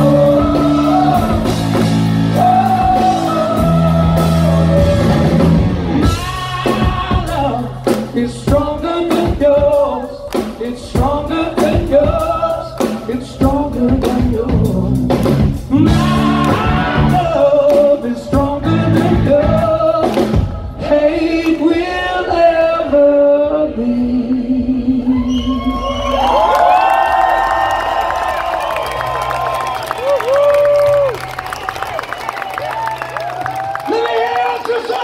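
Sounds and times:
bass guitar: 0.0 - 21.3
man singing: 0.0 - 25.2
drums: 0.0 - 35.0.

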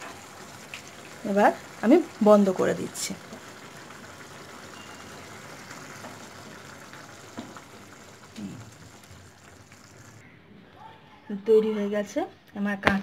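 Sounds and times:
syrup bubbling in a frying pan: 0.0 - 10.2.

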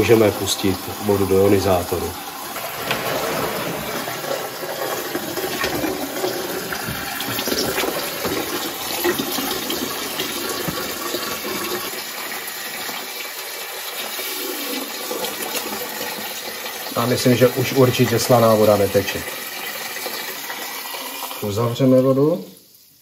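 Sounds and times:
water running into plastic bucket: 0.0 - 23.0.

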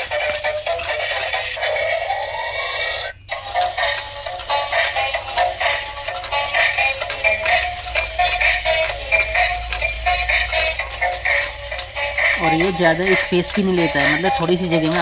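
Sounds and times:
synthetic vocals: 12.2 - 15.0.

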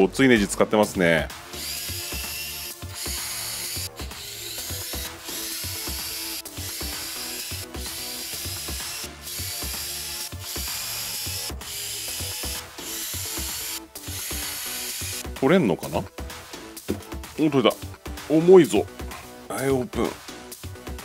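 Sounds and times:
background music: 0.0 - 21.0
electric screwdriver running: 1.5 - 15.3.

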